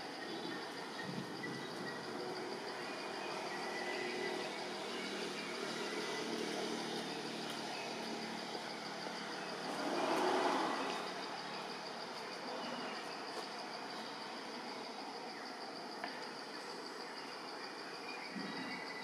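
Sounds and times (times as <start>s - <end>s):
outdoor background noise: 0.0s - 19.0s.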